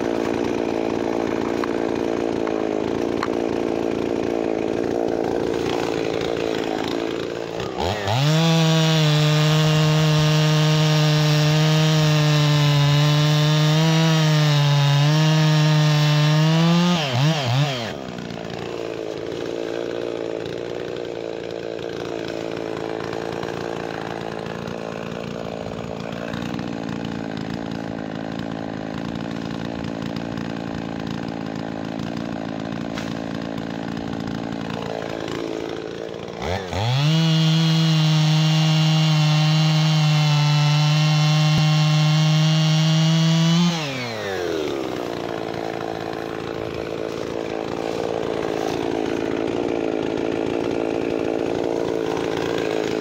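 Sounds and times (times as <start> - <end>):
chainsaw cutting log: 0.0 - 53.0.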